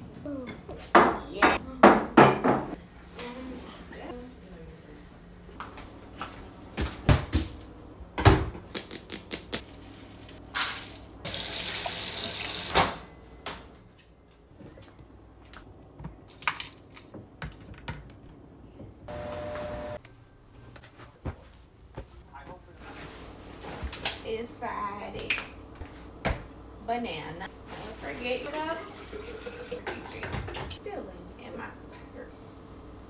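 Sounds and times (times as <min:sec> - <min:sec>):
kitchen knocks and clinks: 0:00.5 - 0:02.8, 0:29.6 - 0:30.8.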